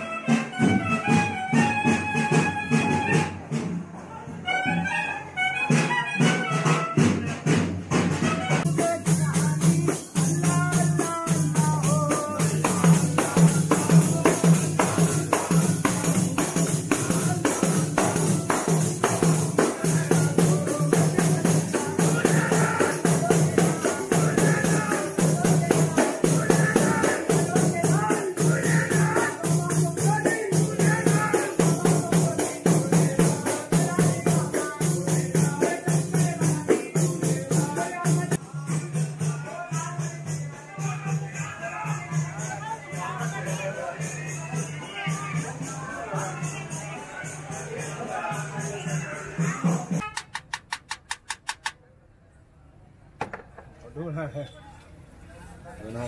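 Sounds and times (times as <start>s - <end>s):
frame drums beating fast: 6.4s - 39.4s, 49.4s - 51.8s
men singing a devotional chant: 6.9s - 50.0s.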